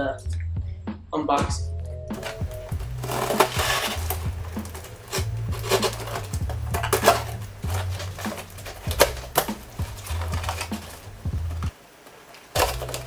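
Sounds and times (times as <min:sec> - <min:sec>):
cardboard box slit open: 0:02.2 - 0:11.1
paper packing rustling: 0:02.2 - 0:13.0.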